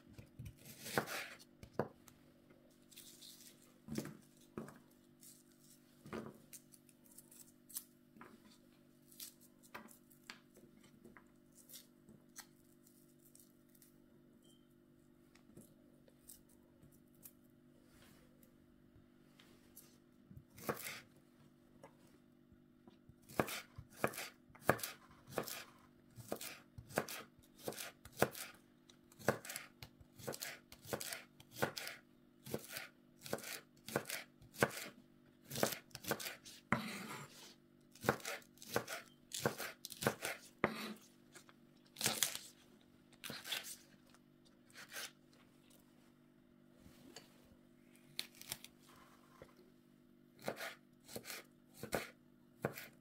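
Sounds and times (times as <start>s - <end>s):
knife chopping on cutting board: 0.4s - 1.9s, 23.3s - 25.6s, 26.2s - 28.5s, 29.2s - 41.0s, 50.4s - 53.0s.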